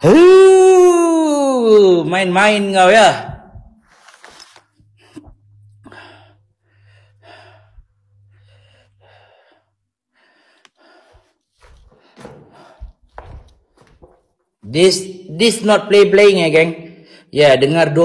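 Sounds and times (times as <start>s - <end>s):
person breathing noisily: 5.1s - 13.2s.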